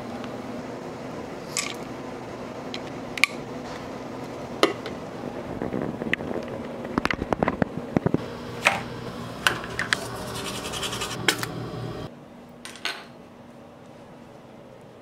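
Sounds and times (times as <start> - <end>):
toothbrush scrubbing teeth: 10.0 - 11.2.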